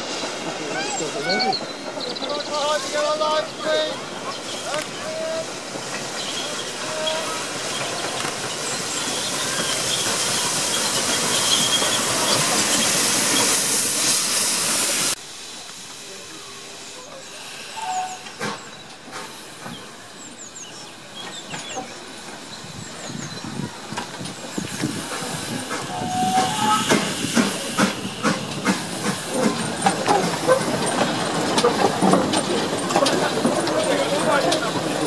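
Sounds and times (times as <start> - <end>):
steam hissing: 0.0 - 35.0
steam locomotive knocking beat: 24.0 - 35.0.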